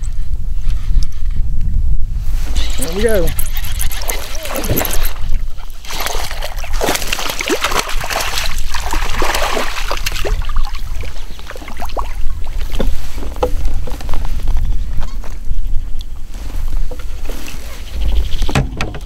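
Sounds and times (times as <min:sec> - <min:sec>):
fish splashing in water: 0:03.3 - 0:12.8
sharp clicks and knocks: 0:18.5 - 0:19.0.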